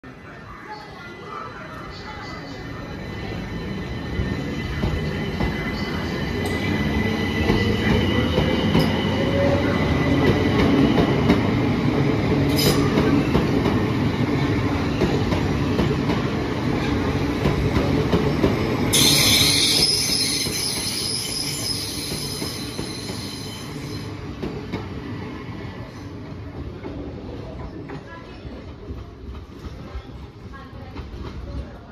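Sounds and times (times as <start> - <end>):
train whine: 1.9 - 26.1
train wheels rumbling on rails: 1.9 - 31.9.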